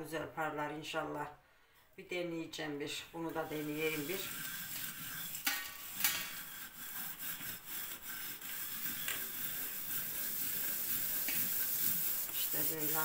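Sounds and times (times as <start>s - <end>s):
hand scouring metal kettle with ash: 3.4s - 13.0s.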